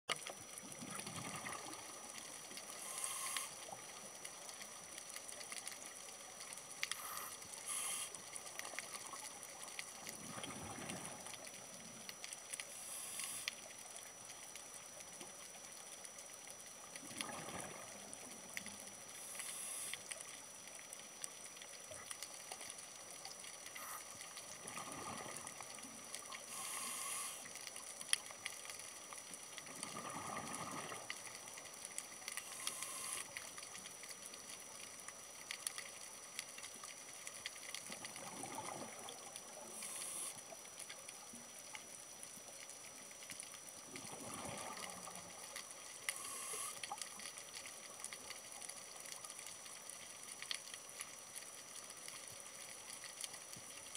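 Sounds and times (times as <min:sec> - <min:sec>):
faint steady crackling: 0:00.0 - 0:53.9
exhaled bubbles: 0:00.4 - 0:02.3, 0:10.0 - 0:11.5, 0:17.0 - 0:18.2, 0:23.8 - 0:25.8, 0:29.6 - 0:31.2, 0:37.9 - 0:40.3, 0:43.8 - 0:45.5
diver breathing through regulator: 0:26.5 - 0:27.4.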